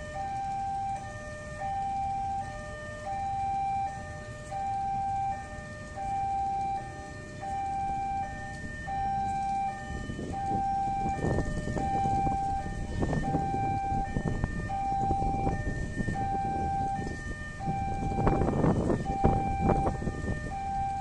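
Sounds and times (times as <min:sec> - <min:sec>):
level crossing warning tones: 0:00.0 - 0:21.0.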